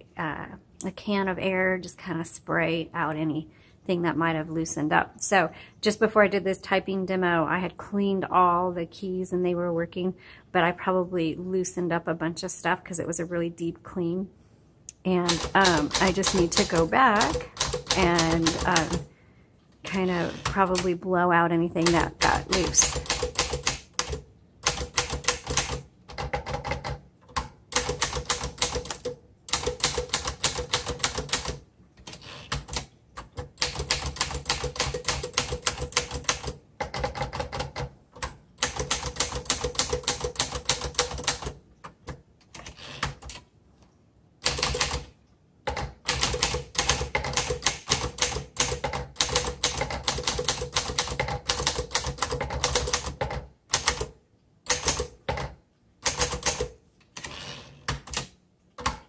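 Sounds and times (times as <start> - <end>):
manual typewriter typing: 15.1 - 19.1, 19.9 - 21.0, 21.7 - 43.5, 44.4 - 45.1, 45.7 - 59.0.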